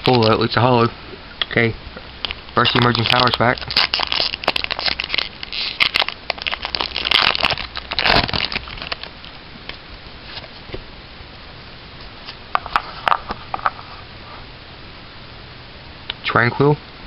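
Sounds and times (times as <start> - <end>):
foil wrapper crackling: 2.2 - 9.4.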